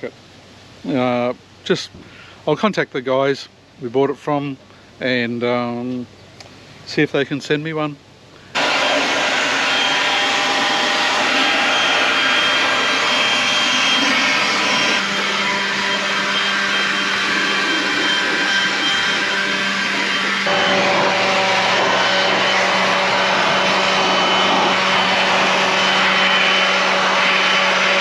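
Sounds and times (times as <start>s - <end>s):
whirring motor: 8.5s - 28.0s.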